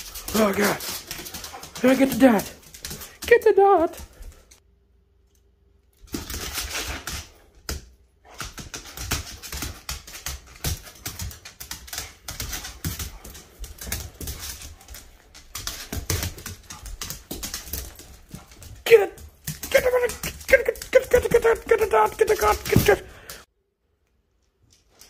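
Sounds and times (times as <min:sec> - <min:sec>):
dog claws clicking on hardwood: 0:06.1 - 0:23.4.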